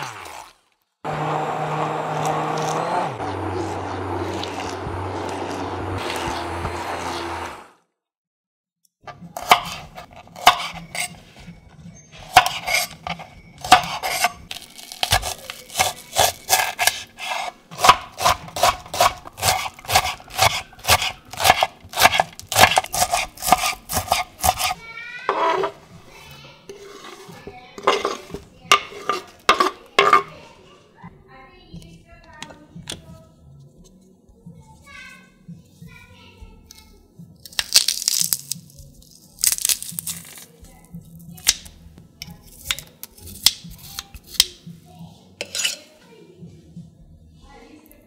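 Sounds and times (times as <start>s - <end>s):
knife scrape: 4.2s - 7.3s, 9.4s - 26.1s, 26.7s - 30.4s, 45.4s - 45.9s
knife chopping on cutting board: 13.6s - 14.4s, 15.0s - 24.8s.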